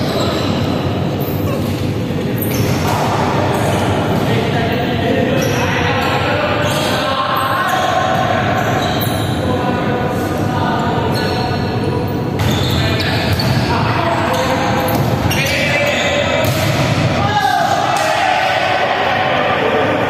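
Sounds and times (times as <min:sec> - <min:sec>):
players' voices: 0:00.0 - 0:20.0
volleyball bouncing on wooden court: 0:16.4 - 0:17.2.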